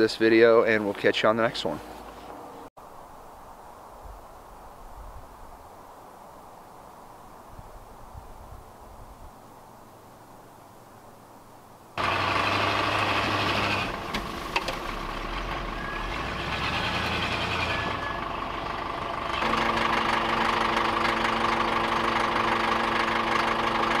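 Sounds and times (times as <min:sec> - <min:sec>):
heavy engines running: 0:12.0 - 0:24.0.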